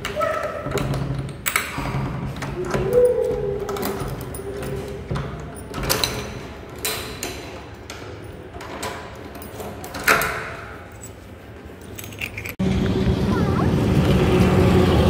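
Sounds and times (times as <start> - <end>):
latch clicks: 0.0 - 11.1
handle and key tag rattling: 0.0 - 12.6
key turning in metal lock: 0.0 - 12.6.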